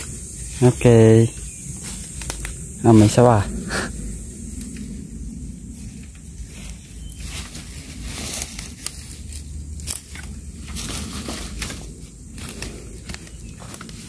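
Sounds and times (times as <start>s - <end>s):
dry leaves rustling: 0.0s - 14.0s
wooden poles being handled: 5.9s - 14.0s.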